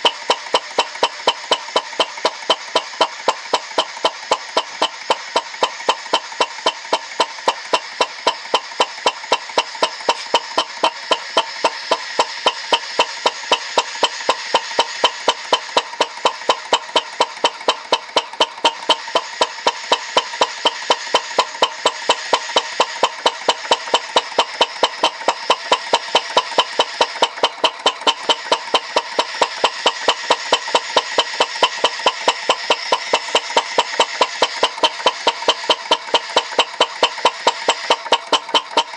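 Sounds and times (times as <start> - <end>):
model engine running: 0.0 - 38.9
sharp clicks: 0.0 - 38.9.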